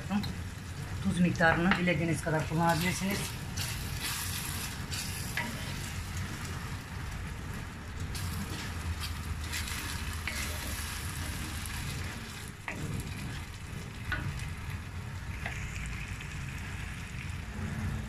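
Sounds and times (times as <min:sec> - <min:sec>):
rice and tomato sizzling in a pot: 0:00.0 - 0:18.0.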